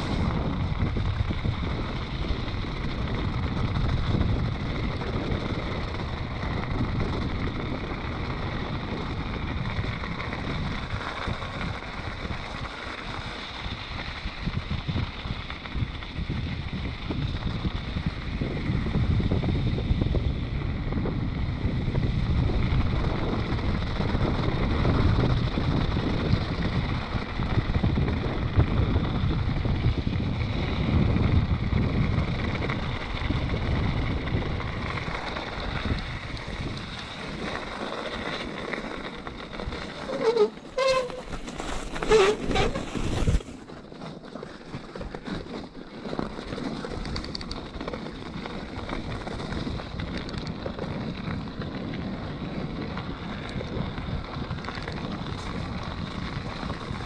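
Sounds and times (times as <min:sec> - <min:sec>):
tyres rumbling on gravel: 0:00.0 - 0:57.0
wind on microphone: 0:00.0 - 0:57.0
short squeaks: 0:39.9 - 0:43.5.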